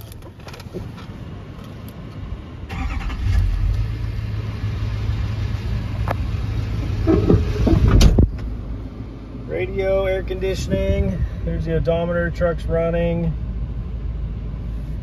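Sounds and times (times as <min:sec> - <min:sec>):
pickup engine starting and idling: 0:00.0 - 0:08.9.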